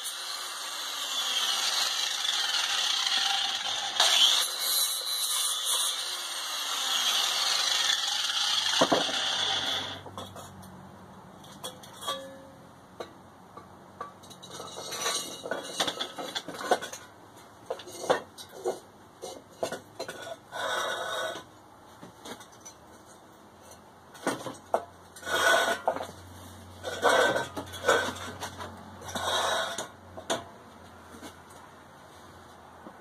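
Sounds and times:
metal tools clinking and scraping: 9.7 - 10.7, 11.4 - 12.5, 14.0 - 21.4, 26.8 - 30.4.

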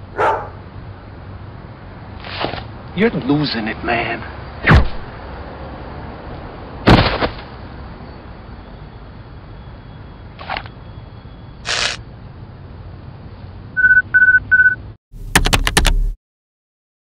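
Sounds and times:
noise bursts: 11.6 - 12.0
short electronic beeps: 13.8 - 14.8.

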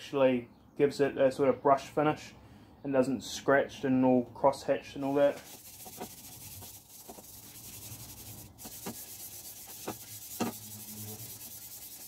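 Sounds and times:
scouring pad rubbing metal pipe: 5.4 - 12.0.

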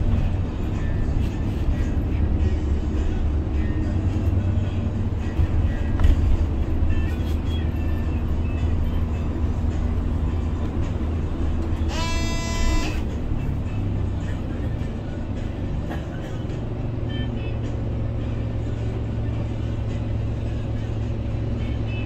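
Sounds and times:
bus engine and road rumble: 0.0 - 22.0
faint background music: 0.0 - 22.0
pitched tone: 11.9 - 13.0.

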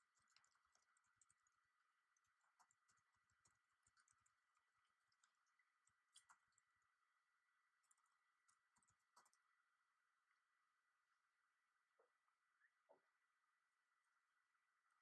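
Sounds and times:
faint clicks: 0.0 - 6.9, 7.8 - 9.6
faint high-pitched hum: 0.0 - 15.0.

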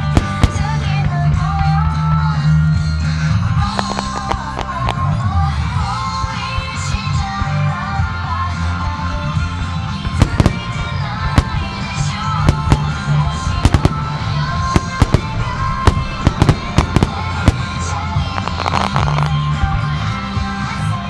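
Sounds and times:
firework shells bursting: 0.0 - 1.0, 3.7 - 5.1, 10.1 - 19.5
music: 0.0 - 21.0.

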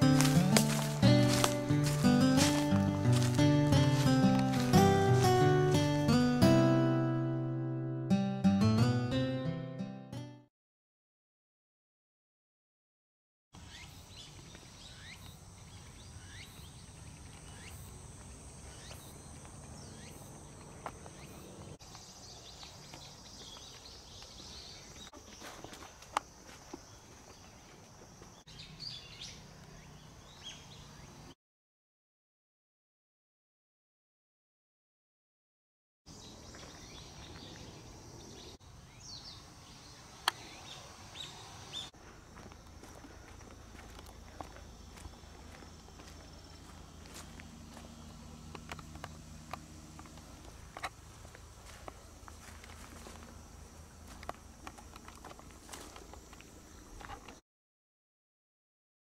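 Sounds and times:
birds chirping: 0.0 - 6.6, 13.6 - 25.5
insects trilling: 13.7 - 28.4, 36.1 - 57.4.

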